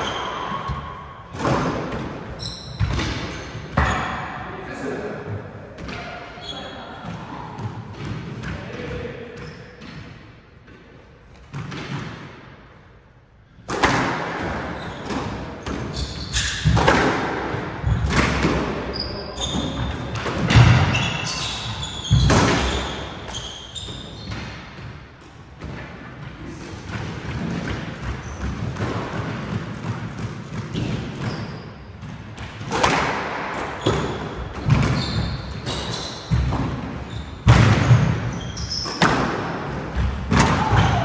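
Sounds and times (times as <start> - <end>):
squash ball hits echoing: 0.0 - 4.5, 5.2 - 12.7, 13.5 - 41.0
sneakers squeaking on hardwood: 2.3 - 4.4, 14.6 - 17.0, 18.9 - 24.9, 28.0 - 28.7, 30.7 - 32.0, 33.7 - 41.0.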